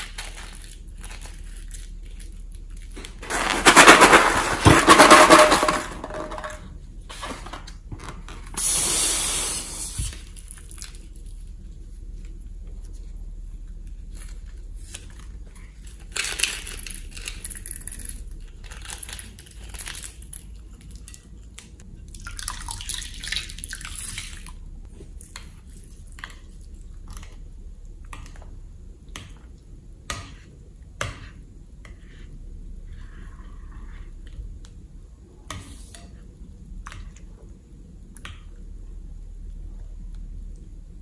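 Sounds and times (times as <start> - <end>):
spoon stirring slime: 29.1 - 34.8.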